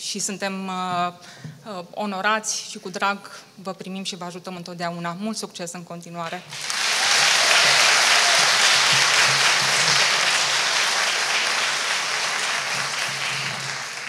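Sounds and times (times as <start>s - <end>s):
audience applauding: 6.5s - 14.0s.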